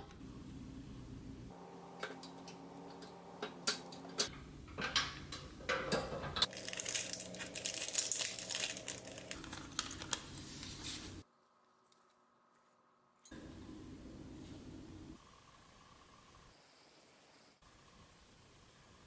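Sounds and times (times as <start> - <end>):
papery rustle: 6.5 - 11.2
gloved hands rustling: 6.5 - 12.8.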